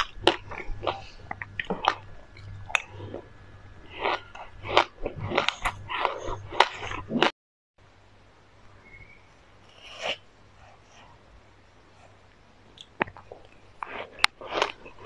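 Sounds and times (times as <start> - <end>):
crunchy chewing of seeds: 0.0 - 7.3, 12.8 - 15.0.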